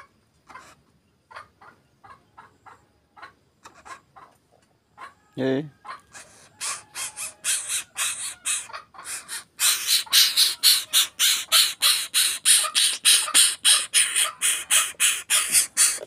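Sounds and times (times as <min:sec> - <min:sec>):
bird harsh rasping begging calls: 0:05.8 - 0:16.0.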